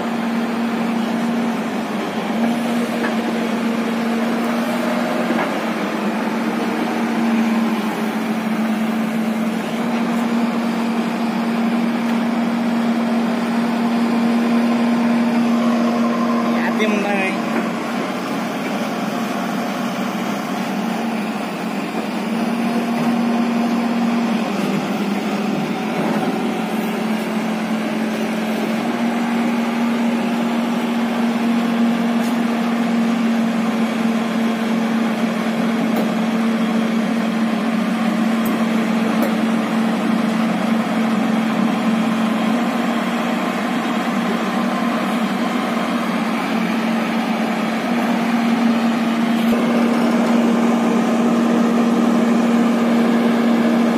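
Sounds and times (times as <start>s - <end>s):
excavator diesel engine running: 0.0s - 53.9s.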